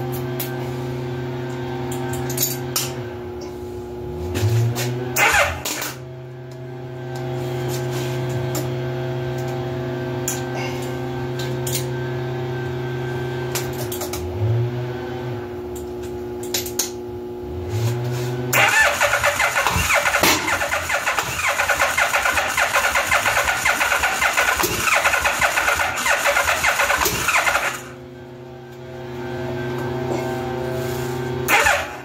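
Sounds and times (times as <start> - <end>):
electric starter cranking engine: 5.2 - 6.0, 18.5 - 28.0, 31.5 - 32.0.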